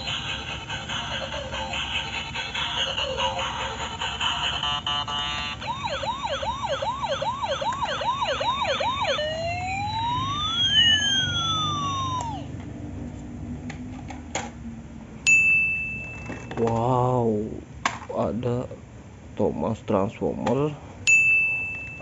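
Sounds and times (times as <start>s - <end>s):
electronic tune: 0.0s - 12.5s
toy electronic siren: 0.0s - 12.6s.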